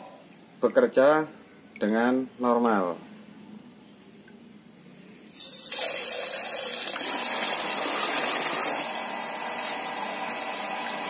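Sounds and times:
water pump running: 5.4 - 11.0.

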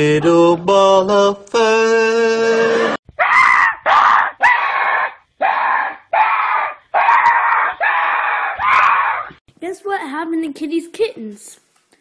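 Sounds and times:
boy screaming in fright: 3.2 - 9.3.

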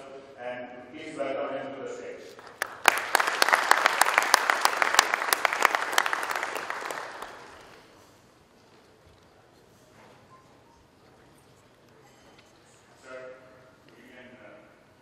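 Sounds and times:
audience applauding: 2.4 - 7.9.

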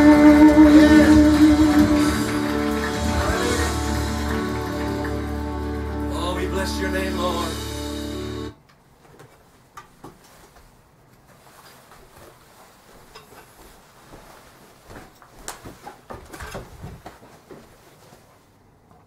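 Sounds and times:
clicks knocks and rustles: 15.4 - 17.6.

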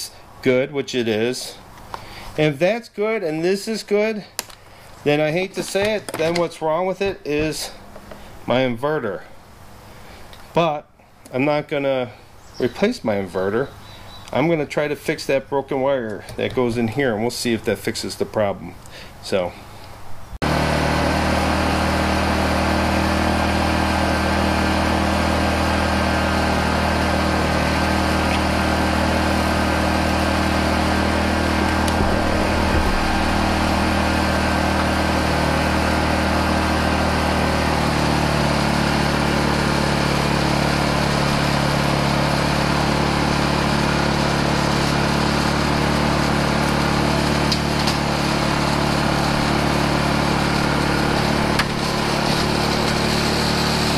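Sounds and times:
generator engine running: 20.4 - 53.9.

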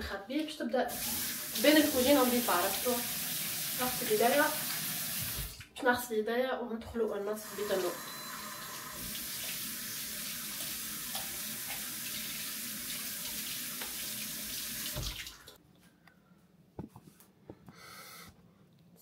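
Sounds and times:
tap running: 10.3 - 15.6.

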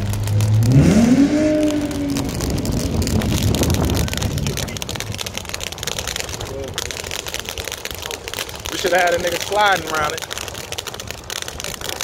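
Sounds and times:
car engine idling and revving: 0.0 - 5.6.

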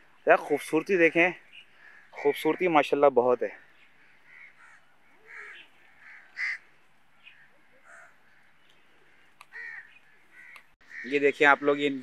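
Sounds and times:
crows cawing: 1.5 - 3.0, 3.8 - 11.7.

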